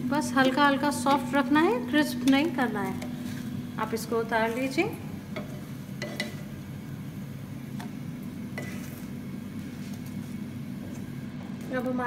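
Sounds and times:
kitchen appliance hum: 0:00.0 - 0:12.0.

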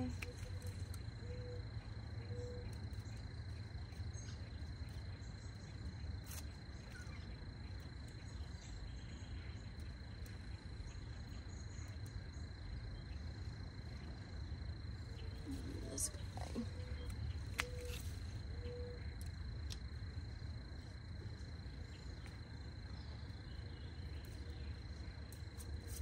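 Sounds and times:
insect trilling: 0:00.0 - 0:26.0
low background rumble: 0:00.0 - 0:26.0
garden snips clicking: 0:17.0 - 0:18.2.

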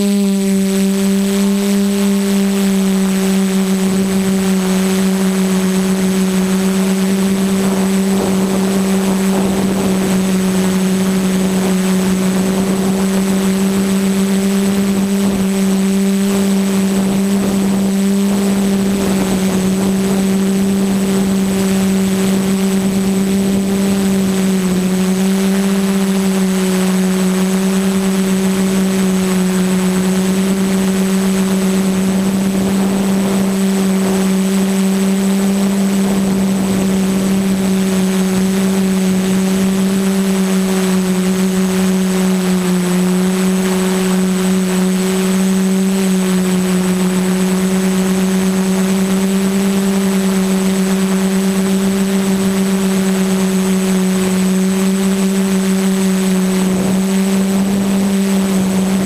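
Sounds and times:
high whine: 0:00.0 - 0:59.0
quadcopter motors humming: 0:00.0 - 0:59.0.

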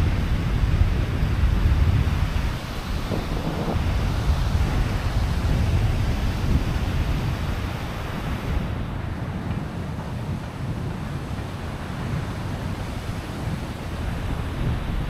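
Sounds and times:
sea surf rushing: 0:00.0 - 0:15.0
wind buffeting microphone: 0:00.0 - 0:15.0.

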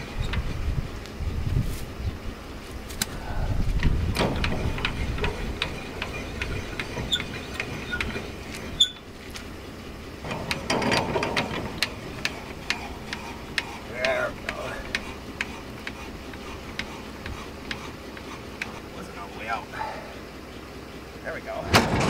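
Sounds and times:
wind rumble on microphone: 0:00.0 - 0:02.4, 0:03.1 - 0:07.1
jack crank clicking: 0:03.8 - 0:09.6, 0:10.2 - 0:18.9.

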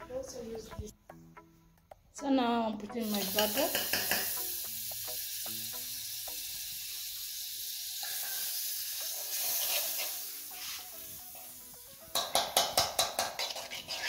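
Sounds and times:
butter sizzling in a pot: 0:03.0 - 0:14.0
spoon clicking against pot: 0:12.1 - 0:13.6.

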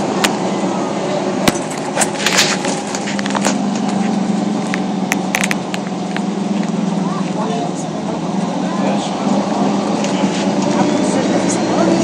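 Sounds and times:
bus drivetrain drone: 0:00.0 - 0:12.0
bus interior clicks and rattles: 0:00.0 - 0:12.0.

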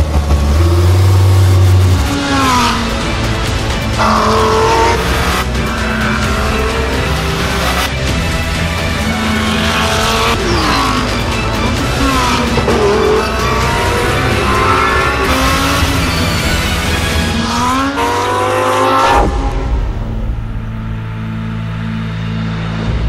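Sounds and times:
race car engine revving: 0:00.0 - 0:22.9
background music: 0:00.0 - 0:23.0
low rumble: 0:19.1 - 0:23.0.

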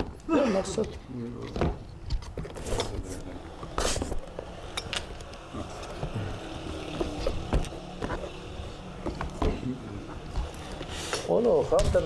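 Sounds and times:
steady low hum: 0:01.0 - 0:12.0
book brushing slide: 0:03.8 - 0:04.2.

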